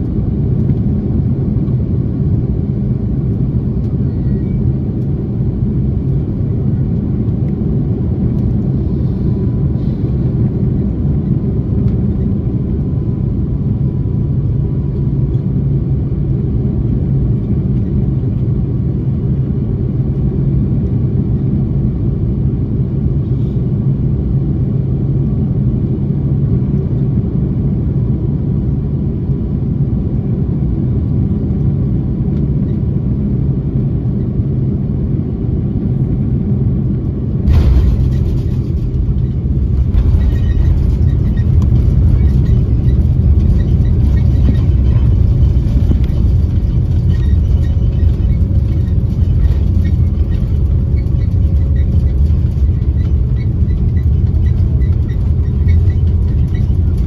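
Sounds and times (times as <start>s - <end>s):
aircraft cabin engine rumble: 0.0s - 57.0s
jet engines reverse thrust: 0.0s - 57.0s
landing gear touchdown rattle: 37.5s - 57.0s.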